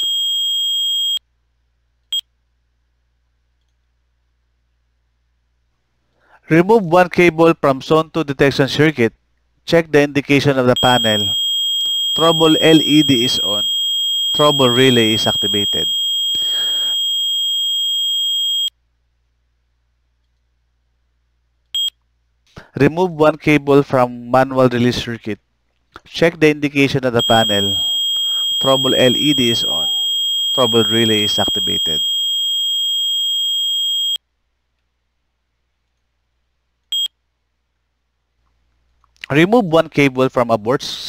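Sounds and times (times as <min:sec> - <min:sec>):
high-pitched alarm buzzer tone: 0:00.0 - 0:01.2, 0:10.8 - 0:18.7, 0:27.2 - 0:34.2
short beep: 0:27.2 - 0:32.0.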